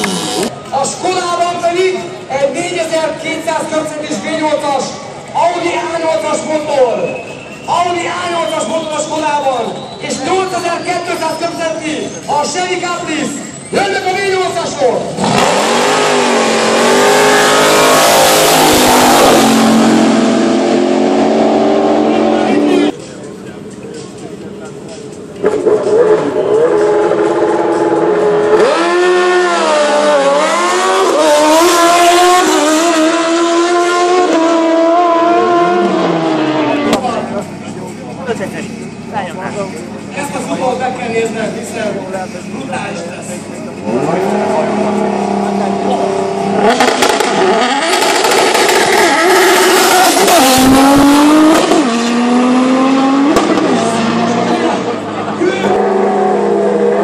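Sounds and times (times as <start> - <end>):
motorcycle engines revving: 0.0 - 0.6, 2.1 - 57.0
cars accelerating hard: 14.0 - 23.1, 25.4 - 57.0.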